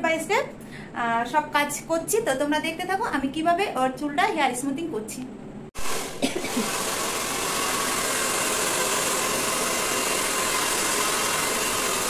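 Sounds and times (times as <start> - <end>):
hair dryer blowing air: 5.8 - 12.0.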